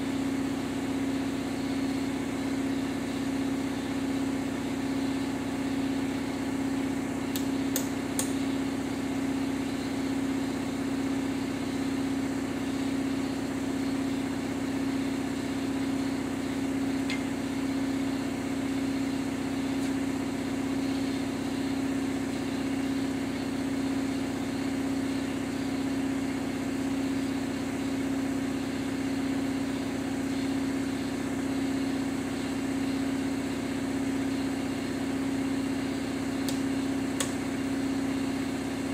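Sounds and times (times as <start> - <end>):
sharp light clicks: 7.3 - 8.4.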